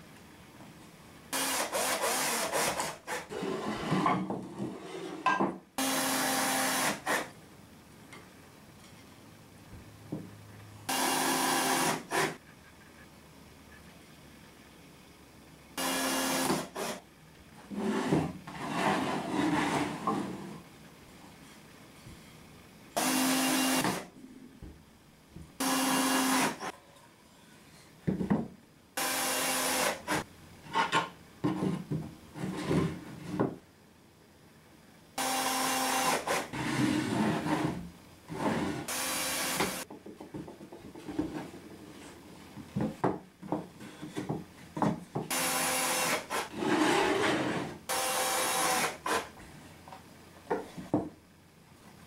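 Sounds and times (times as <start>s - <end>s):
cordless drill driving screws: 1.4s - 3.2s, 10.9s - 12.3s, 15.8s - 17.0s, 25.6s - 26.7s, 35.2s - 36.5s, 45.3s - 46.5s, 47.9s - 49.3s.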